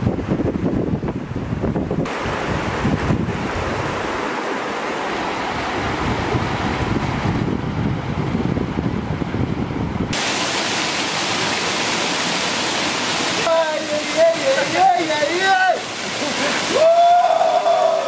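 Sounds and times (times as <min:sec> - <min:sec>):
wind buffeting microphone: 0:00.0 - 0:04.3, 0:05.4 - 0:10.2
water rushing over boulders: 0:00.2 - 0:07.8, 0:10.1 - 0:18.0
waterfall rushing: 0:10.1 - 0:18.0.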